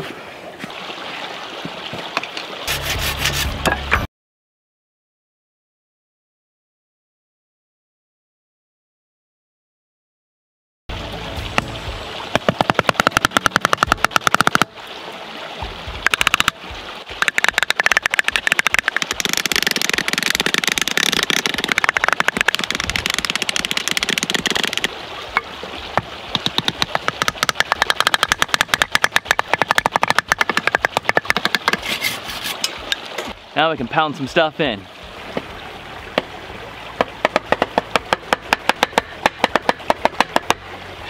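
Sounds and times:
wooden baton knocking on wood: 17.2s - 31.8s, 37.0s - 40.6s.

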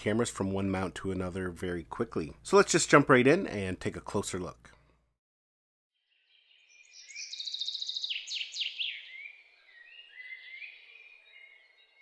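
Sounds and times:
faint steady background noise: 0.0s - 5.1s
birds singing: 6.0s - 12.0s.

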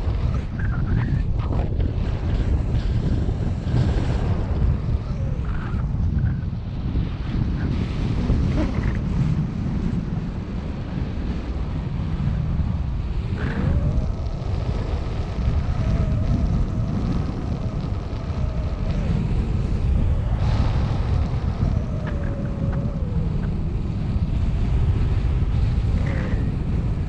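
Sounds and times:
wind buffeting microphone: 0.0s - 27.0s
faint wavering hum: 12.2s - 27.0s.

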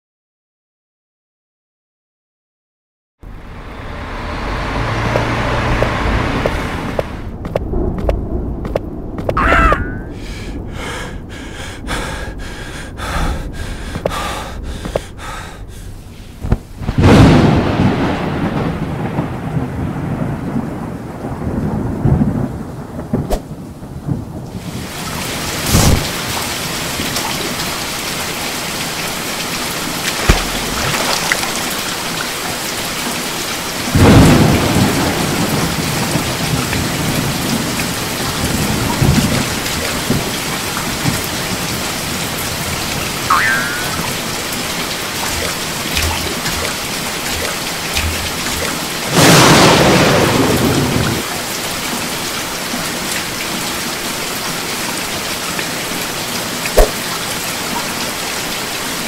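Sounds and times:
heavy rain pouring: 3.2s - 59.0s
thunder clap rumbling: 3.5s - 14.9s, 16.4s - 26.4s, 30.0s - 32.2s, 33.9s - 43.2s, 43.8s - 51.3s.

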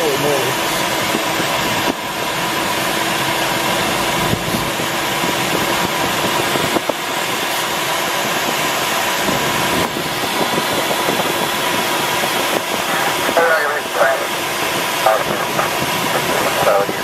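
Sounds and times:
airflow rushing over canopy: 0.0s - 17.0s.

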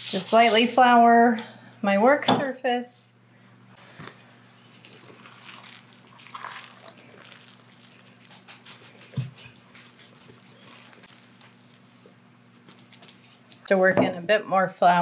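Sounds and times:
soft squishing: 3.8s - 13.7s.

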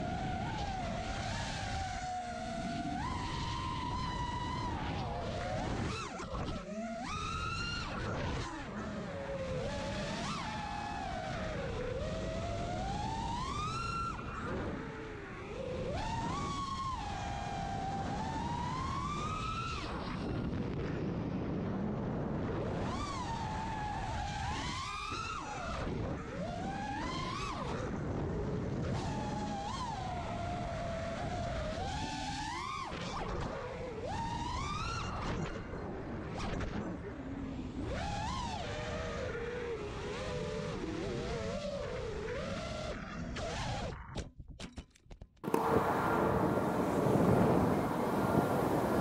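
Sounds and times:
wind rushing on microphone: 0.0s - 43.9s, 45.4s - 49.0s
drone motors whining: 45.4s - 49.0s.

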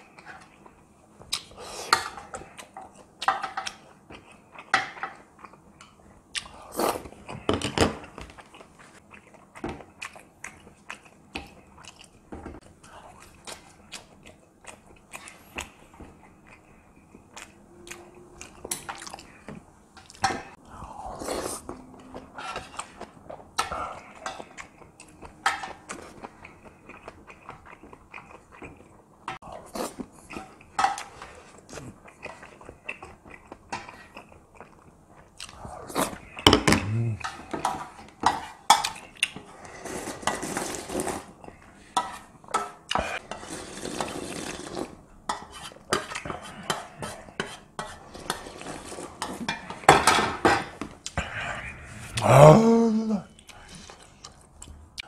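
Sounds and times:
chewing: 12.8s - 40.3s.

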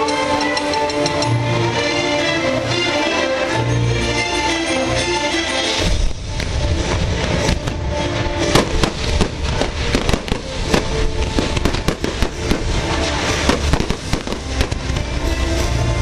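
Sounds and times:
fireworks bangs and crackles: 5.7s - 16.0s.

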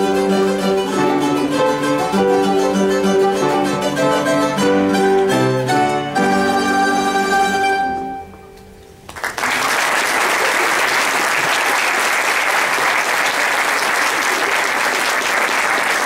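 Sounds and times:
mandolins and guitar playing: 0.0s - 8.8s
audience applause: 9.1s - 16.0s.

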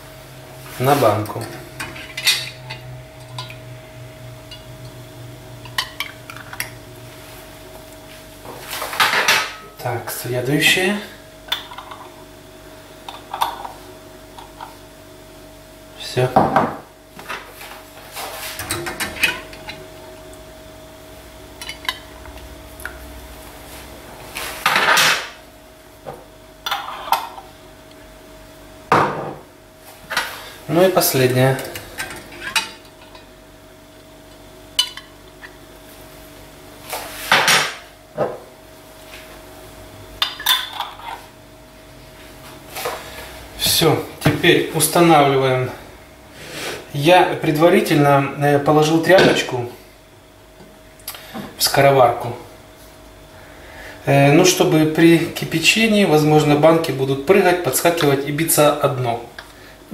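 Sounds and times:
faint steady hum: 0.0s - 59.9s.

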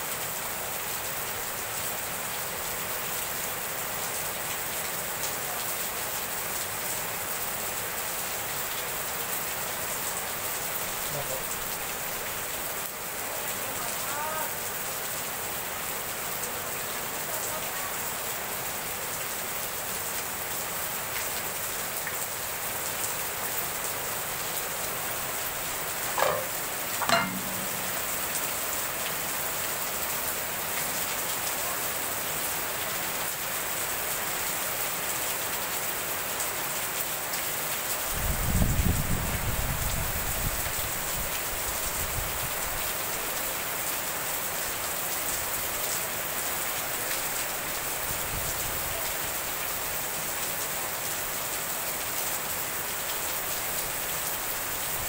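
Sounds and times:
heavy rain pouring: 0.0s - 55.0s.

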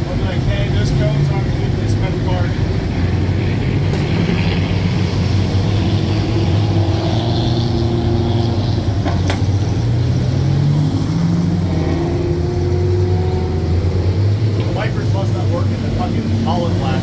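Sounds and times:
car engines in slow traffic: 0.0s - 17.0s.

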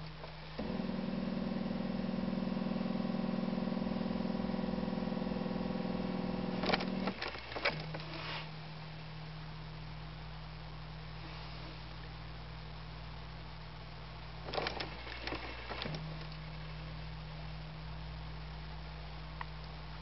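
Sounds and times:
steady low hum: 0.0s - 20.0s
diesel engine starter cranking: 6.4s - 8.1s.

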